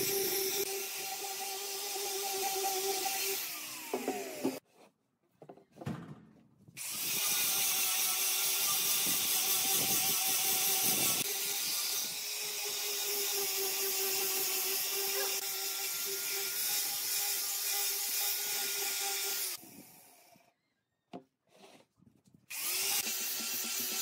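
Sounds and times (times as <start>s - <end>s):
angle grinder sanding wood: 0.0s - 4.6s, 6.8s - 19.6s, 22.5s - 24.0s.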